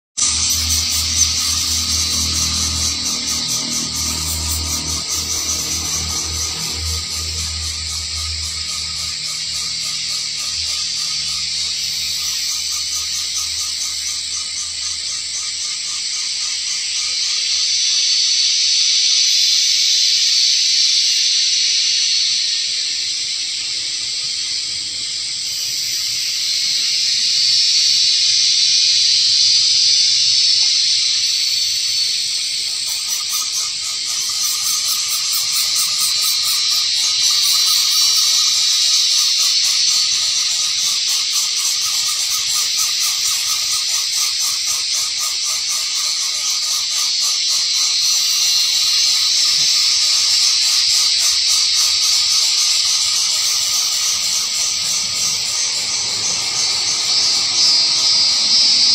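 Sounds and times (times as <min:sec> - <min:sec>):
insect chorus fast pulsing trill: 0:00.2 - 0:58.9.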